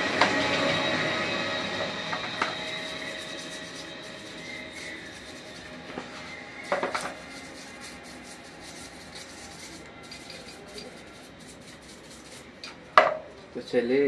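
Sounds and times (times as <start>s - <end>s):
brush scrubbing metal: 1.8s - 12.9s.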